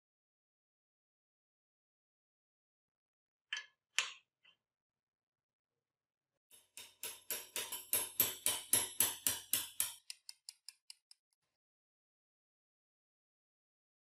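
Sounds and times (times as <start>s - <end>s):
metal-on-metal taps: 6.6s - 11.2s.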